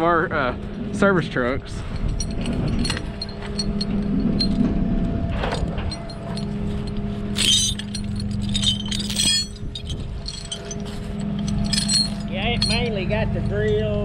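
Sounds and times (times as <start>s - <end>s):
engine idling hum: 0.0s - 14.0s
metallic clinking and jingling: 1.9s - 4.8s, 5.4s - 14.0s.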